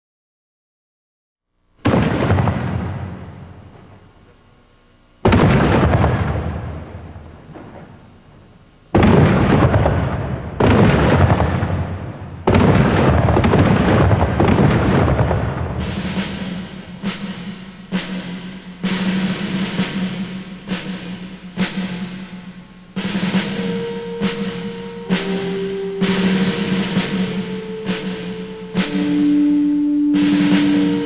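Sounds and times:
heavy booms: 1.8 - 4.1, 5.2 - 8.2, 8.9 - 20.3, 23.0 - 31.0
low steady note: 15.4 - 31.0.

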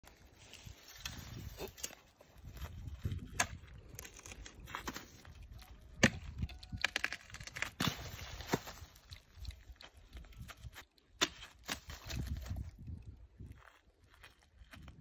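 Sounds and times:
blade chopping cactus branches: 6.0 - 8.8.

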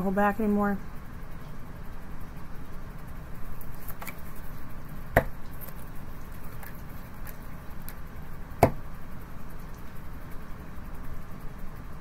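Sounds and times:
cards being shuffled: 3.6 - 4.4.

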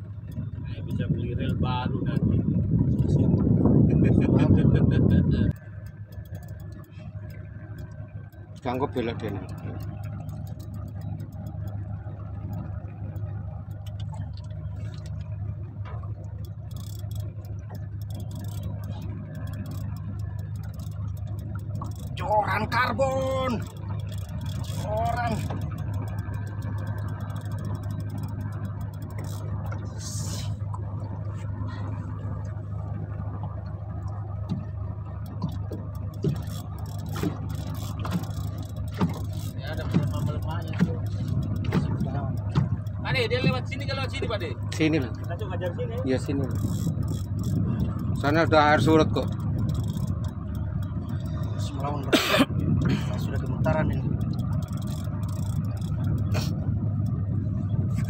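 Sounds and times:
outboard engine running: 0.0 - 58.0
rapid light ticking: 0.0 - 58.0
light knocks: 35.3 - 43.6.

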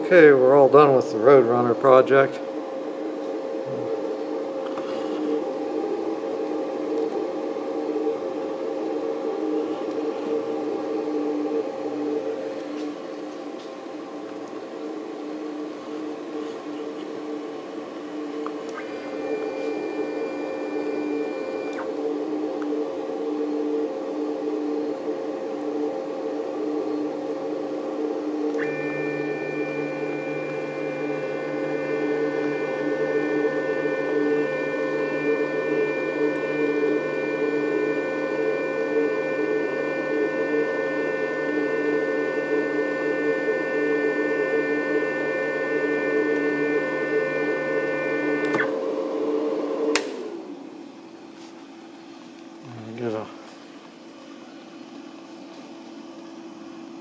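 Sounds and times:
high-pitched whine: 17.2 - 25.2, 28.4 - 51.2
router motor hum: 18.7 - 22.8, 28.4 - 50.8.

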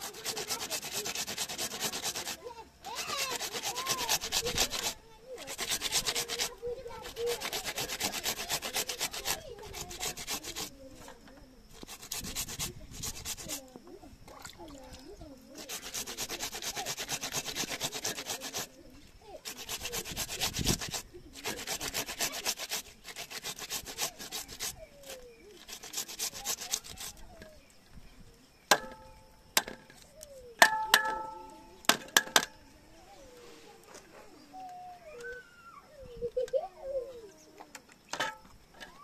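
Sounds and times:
rapid rhythmic scraping strokes: 0.0 - 13.7, 15.5 - 27.2
sharp metal clanks: 28.7 - 29.9, 30.6 - 32.6.

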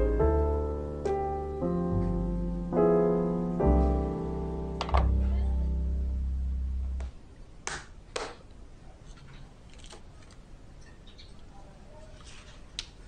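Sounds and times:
piano music: 0.0 - 7.1
paper rustling: 12.0 - 13.0.

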